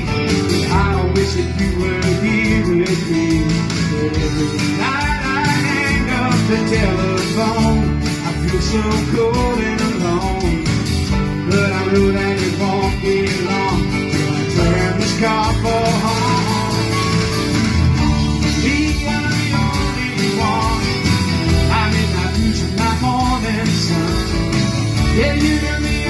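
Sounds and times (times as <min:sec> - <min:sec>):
bending melody line: 0:00.0 - 0:26.0
country rock band playing: 0:00.0 - 0:26.0.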